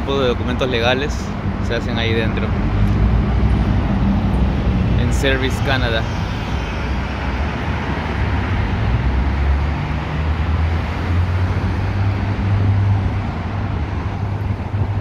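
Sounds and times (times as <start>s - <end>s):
cars and buses driving by: 0.0s - 15.0s
low engine hum: 0.0s - 15.0s
tyres on road: 0.0s - 15.0s.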